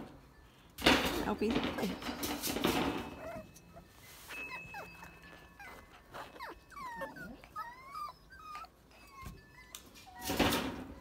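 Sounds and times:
puppy whining and whimpering: 0:02.7 - 0:11.0.

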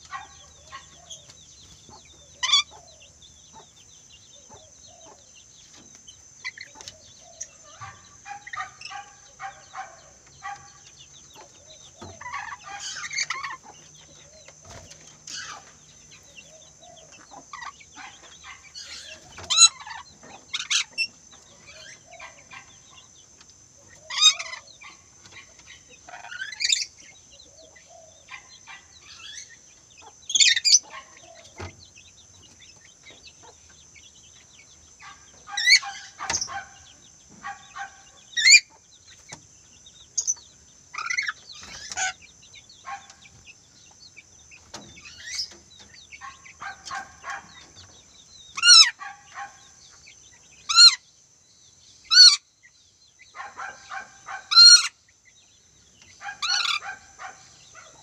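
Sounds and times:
lorikeets screeching: 0:02.2 - 0:03.6, 0:06.5 - 0:23.1, 0:23.8 - 0:29.6, 0:30.3 - 0:31.8, 0:35.0 - 0:38.8, 0:40.2 - 0:43.4, 0:44.8 - 0:49.8, 0:50.6 - 0:51.1, 0:52.0 - 0:52.5, 0:53.3 - 0:55.0, 0:56.0 - 0:58.0.

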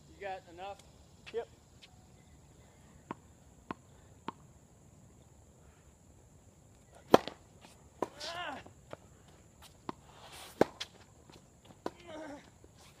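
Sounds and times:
tennis ball bouncing: 0:03.0 - 0:04.4, 0:07.1 - 0:07.4, 0:09.8 - 0:11.0
racquet striking ball: 0:07.1 - 0:07.4.

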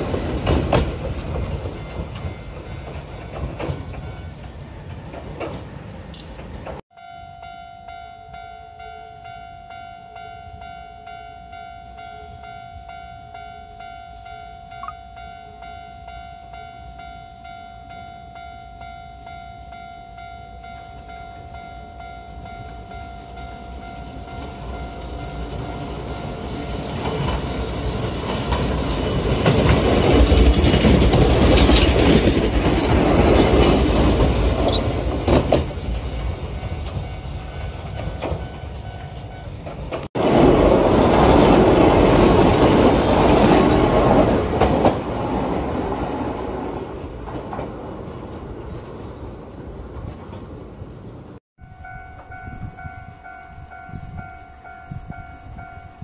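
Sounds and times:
train wheels clattering: 0:00.0 - 0:06.8, 0:20.7 - 0:51.4
level crossing alarm ringing: 0:06.9 - 0:26.9, 0:51.6 - 0:56.0.

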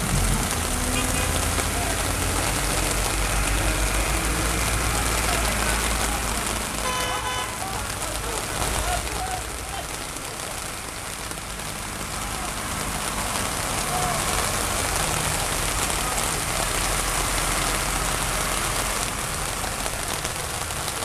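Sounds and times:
heavy rain hissing on street: 0:00.0 - 0:21.0
tractor engines driving through water: 0:00.0 - 0:21.0.

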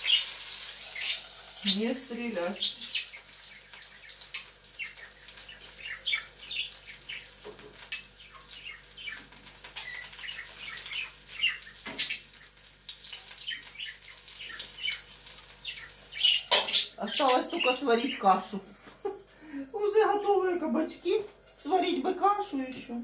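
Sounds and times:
oil crackling in frying pan: 0:00.0 - 0:23.0.

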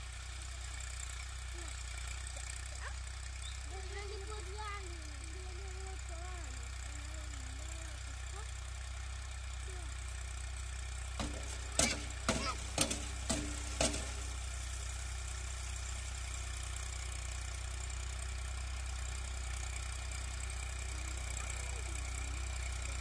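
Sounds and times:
tractor diesel engine running: 0:00.0 - 0:23.0
sharp knocks: 0:11.2 - 0:14.4.

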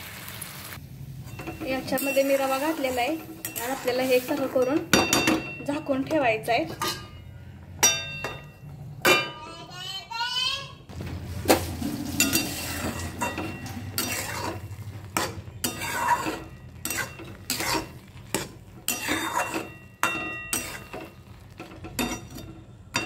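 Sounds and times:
spatula scraping a pan: 0:01.2 - 0:05.1, 0:11.5 - 0:23.0.

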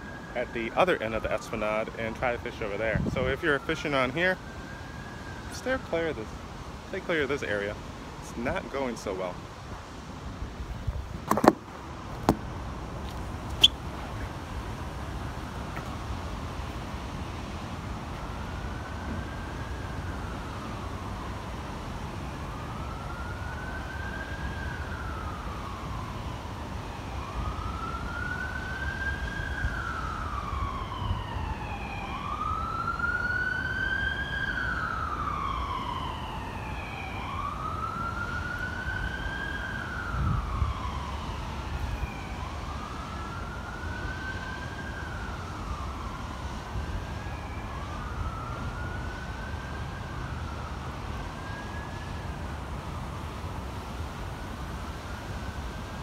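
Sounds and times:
second siren wailing: 0:00.0 - 0:07.7, 0:17.4 - 0:56.0
wind rumble on microphone: 0:02.7 - 0:03.7, 0:10.0 - 0:33.2, 0:39.7 - 0:56.0
siren wailing: 0:22.2 - 0:53.1.

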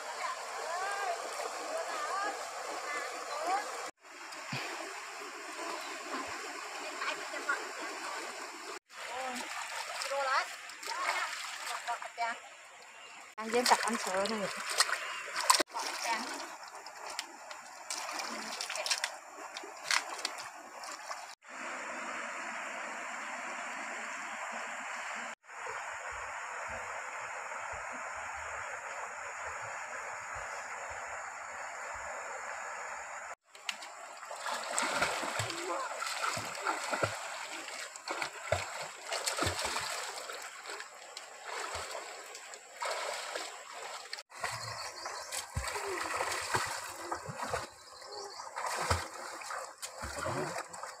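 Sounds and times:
river water over rocks: 0:00.0 - 0:51.0
hands splashing in water: 0:13.6 - 0:21.3, 0:33.6 - 0:47.7, 0:48.5 - 0:50.9.

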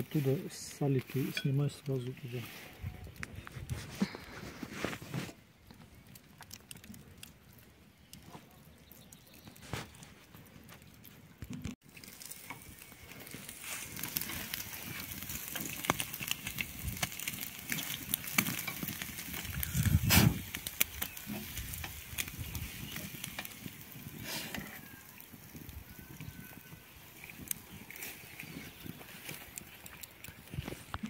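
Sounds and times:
fat crackling and popping: 0:00.0 - 0:31.0
meat sizzling over charcoal: 0:00.0 - 0:31.0.

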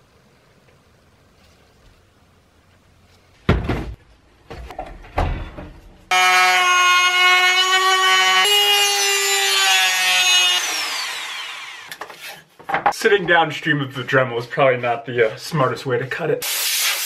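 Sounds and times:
knocks and clunks: 0:03.4 - 0:06.1
rotary tool whining: 0:06.1 - 0:12.2.

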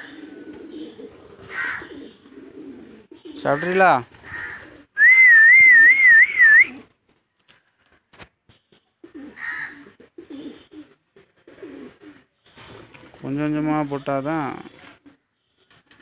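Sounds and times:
pigeons cooing: 0:00.0 - 0:05.2, 0:08.8 - 0:13.2, 0:14.0 - 0:16.0.

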